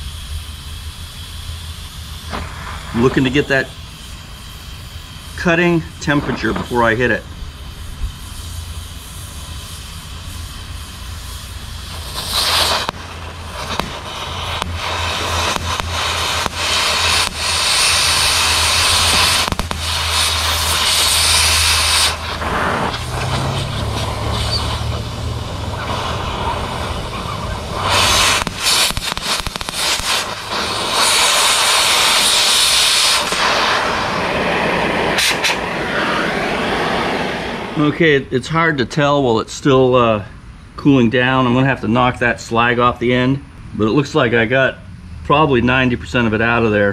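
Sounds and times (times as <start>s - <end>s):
crackling sparks: 0.0s - 38.2s
cutting torch flame hissing: 0.0s - 40.3s.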